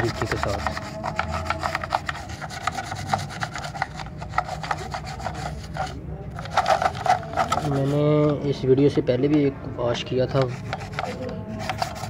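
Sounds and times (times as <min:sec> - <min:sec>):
toothbrush scrubbing wet board: 0:00.0 - 0:08.0, 0:10.4 - 0:12.0.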